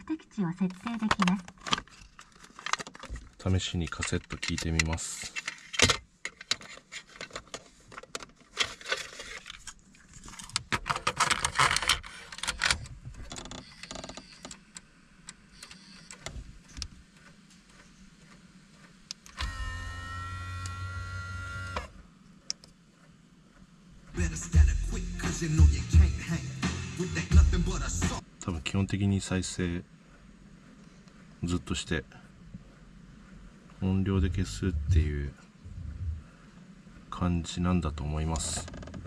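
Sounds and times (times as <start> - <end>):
plastic clicks and rattles: 0.7 - 14.9
motorised display panel whining: 13.5 - 24.2.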